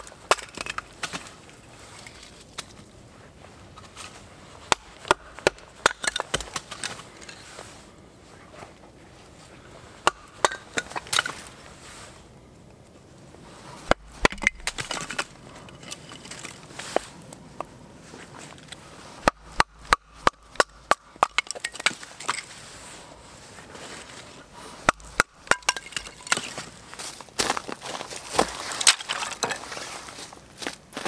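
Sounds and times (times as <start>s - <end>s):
knife splitting wood sticks: 4.7s - 7.4s, 10.0s - 11.5s, 13.8s - 17.7s, 18.5s - 22.5s, 24.8s - 26.6s.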